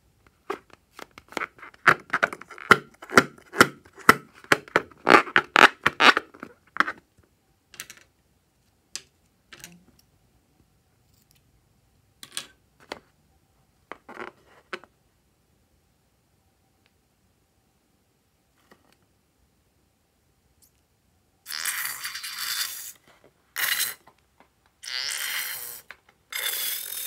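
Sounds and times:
rubbery balloon squeaks and taps: 0:00.5 - 0:07.0.

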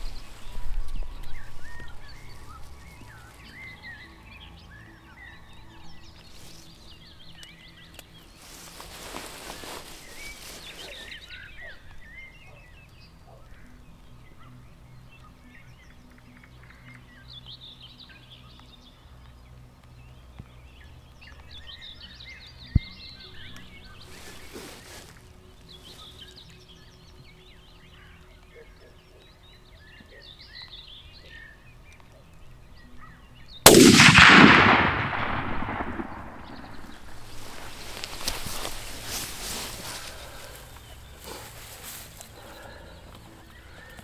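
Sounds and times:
birds singing: 0:00.0 - 0:44.0
rifle shot echoing: 0:33.6 - 0:37.8.

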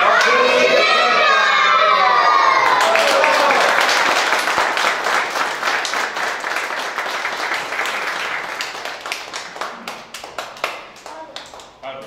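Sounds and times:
crowd applauding: 0:02.4 - 0:11.9.

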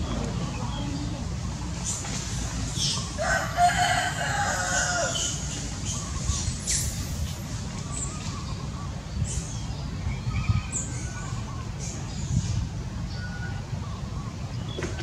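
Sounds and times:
steady low rumble: 0:00.0 - 0:03.2
rooster crowing: 0:03.2 - 0:05.4.

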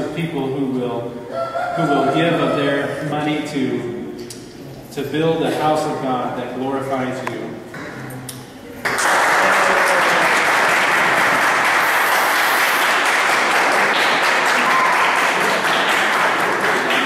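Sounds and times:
crowd clapping: 0:08.8 - 0:17.0.

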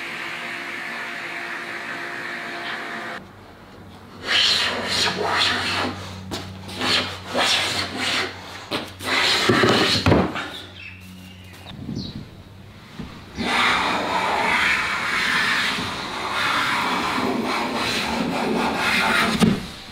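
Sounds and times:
hand plane cutting wood: 0:06.7 - 0:10.2, 0:13.4 - 0:19.6.

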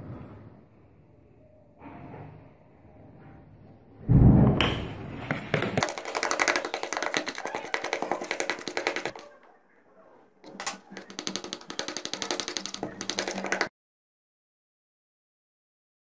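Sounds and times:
spoon beating batter in bowl: 0:04.6 - 0:09.5, 0:10.4 - 0:13.7.

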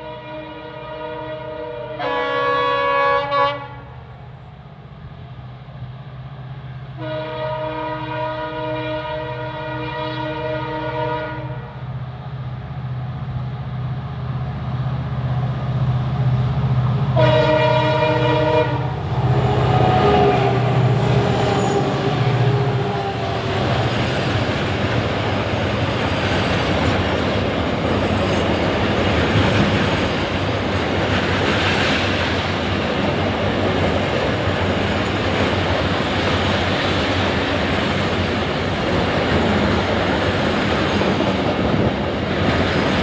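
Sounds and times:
locomotive horn blasts: 0:00.0 - 0:04.0, 0:07.0 - 0:11.8, 0:17.1 - 0:24.0
diesel locomotive engine drone: 0:00.0 - 0:43.0
train wheel noise: 0:11.9 - 0:43.0.

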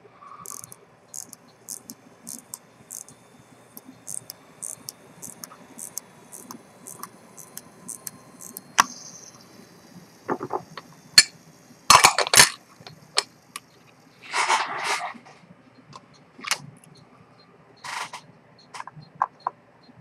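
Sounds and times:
small metallic clicks: 0:00.4 - 0:08.9.

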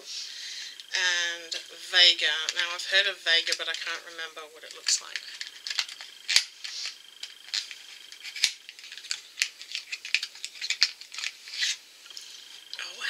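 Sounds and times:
packaging crinkling: 0:04.7 - 0:12.8.

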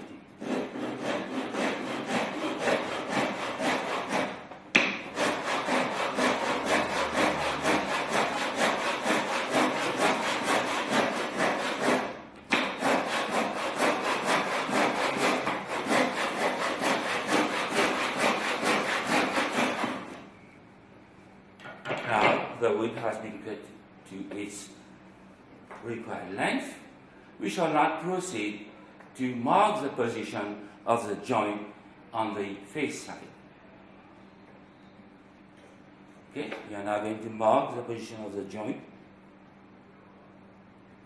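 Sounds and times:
hand saw cutting wood: 0:00.4 - 0:20.2.

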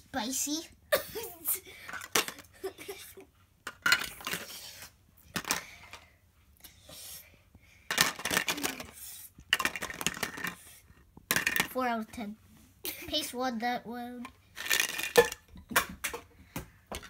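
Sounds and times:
toy pots and utensils clattering: 0:01.8 - 0:02.5, 0:03.6 - 0:04.6, 0:07.9 - 0:10.6, 0:11.3 - 0:11.8, 0:14.2 - 0:16.3.

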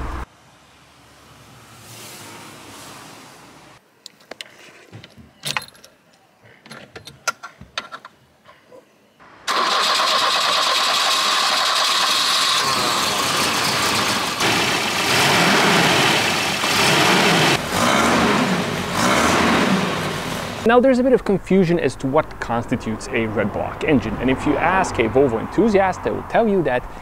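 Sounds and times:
car engine starting and revving: 0:09.5 - 0:20.7, 0:22.0 - 0:26.3.

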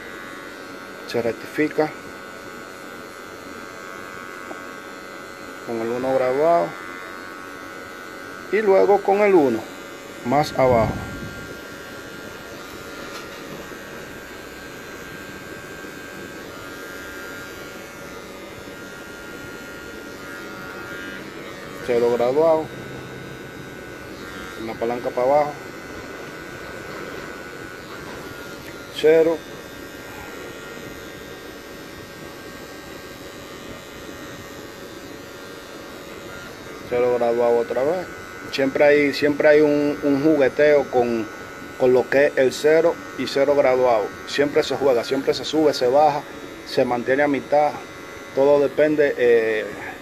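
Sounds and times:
electric hair clipper running: 0:00.0 - 0:50.0.

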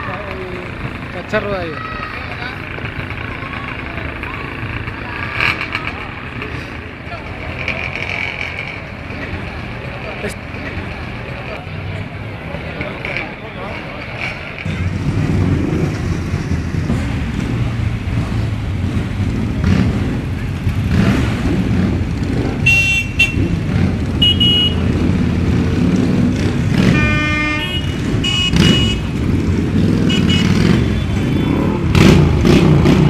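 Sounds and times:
motorcycle engines rumbling: 0:00.0 - 0:33.0
horn toots: 0:22.6 - 0:25.0, 0:26.4 - 0:29.2, 0:29.8 - 0:32.1.

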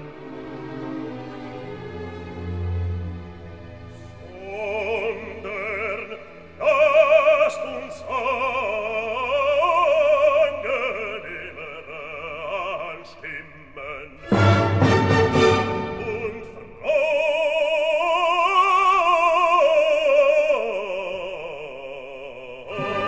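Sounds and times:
classical instrumental accompaniment: 0:00.0 - 0:13.0, 0:14.0 - 0:17.9, 0:22.7 - 0:23.0
operatic singing with vibrato: 0:00.0 - 0:23.0.

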